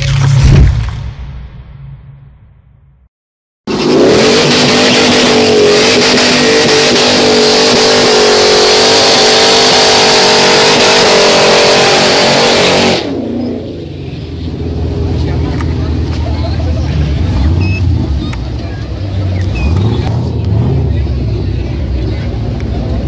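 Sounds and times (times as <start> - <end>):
engine at high revs: 3.7 - 13.8, 16.7 - 23.0
low engine rumble: 13.1 - 23.0.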